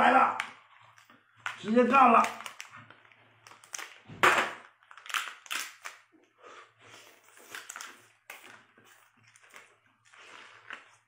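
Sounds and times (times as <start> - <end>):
lobster shell cracking: 4.9 - 6.0.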